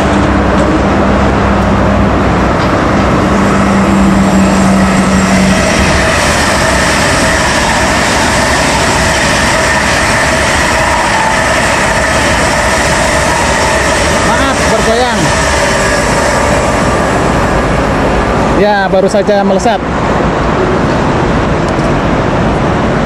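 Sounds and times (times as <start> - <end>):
low hum: 0.0 - 19.1
electric trains passing at speed: 0.0 - 23.0
high whining tones: 0.0 - 23.0.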